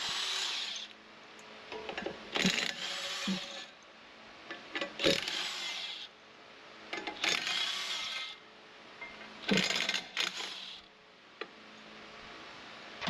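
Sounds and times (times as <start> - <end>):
impact wrench hammering bolts: 1.8 - 3.6, 9.5 - 10.6.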